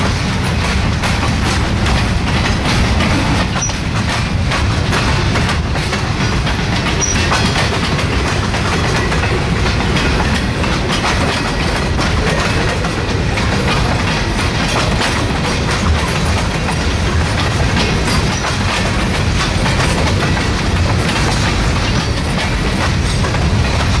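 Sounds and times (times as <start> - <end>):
freight cars rumbling: 0.0 - 24.0
train wheels clicking over rail joints: 0.0 - 24.0.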